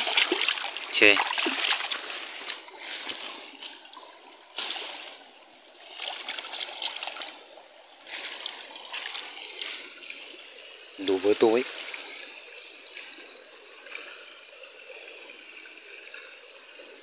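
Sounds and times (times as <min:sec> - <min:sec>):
basket splashing in water: 0:00.0 - 0:02.1
stream water running over rocks: 0:00.0 - 0:17.0.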